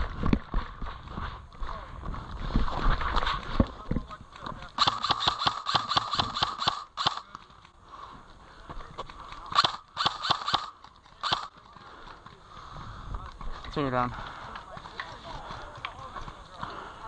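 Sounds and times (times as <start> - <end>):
airsoft rifle firing bursts: 4.8 - 7.3, 9.5 - 11.5.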